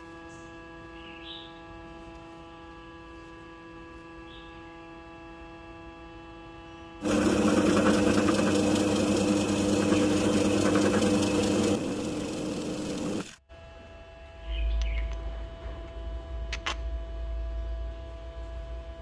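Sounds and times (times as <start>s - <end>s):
motor hum: 0.0s - 18.9s
drill press boring through plastic: 7.0s - 13.4s.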